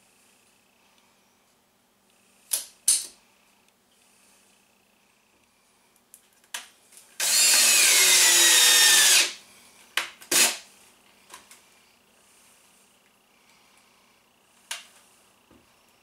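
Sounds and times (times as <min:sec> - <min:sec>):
cordless drill driving screw: 0:07.2 - 0:09.4, 0:10.3 - 0:10.6.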